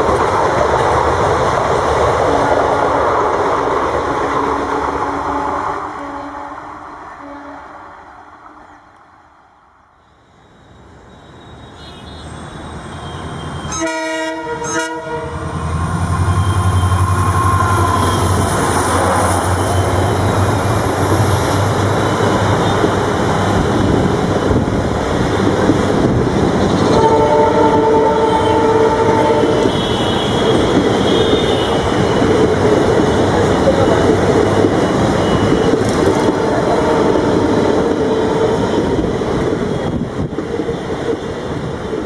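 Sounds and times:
train horn blasts: 5.1s - 7.8s, 13.6s - 15.6s, 26.8s - 32.2s, 36.3s - 38.9s
rolling wheel noise: 29.1s - 39.1s.

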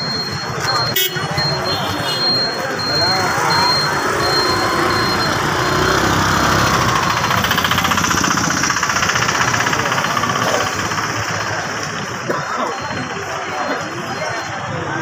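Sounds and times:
motorcycles riding past: 2.9s - 12.3s.

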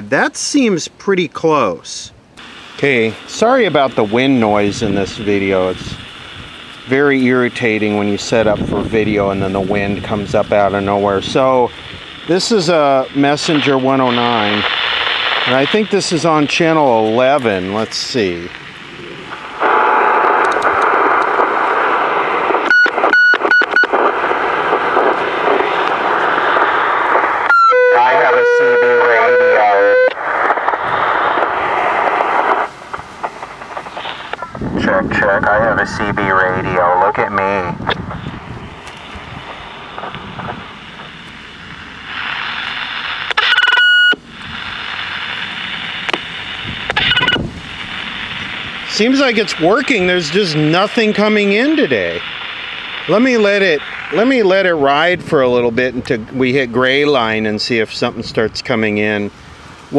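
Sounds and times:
radio static hiss: 0.0s - 59.9s
loud feedback squeal: 27.5s - 30.2s.

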